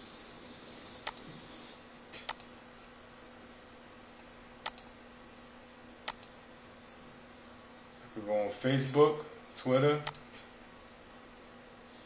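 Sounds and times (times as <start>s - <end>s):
computer mouse clicks: 1.0s - 1.3s, 2.2s - 2.5s, 4.6s - 4.9s, 6.1s - 6.4s, 10.0s - 10.2s.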